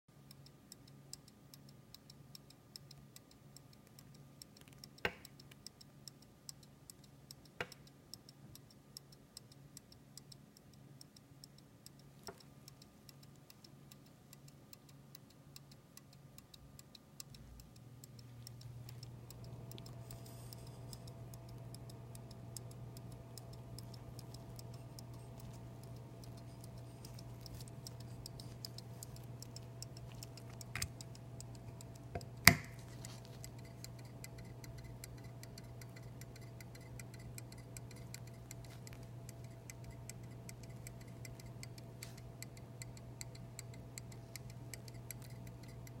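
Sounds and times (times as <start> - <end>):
pocket watch ticking: 0.2 - 46.0.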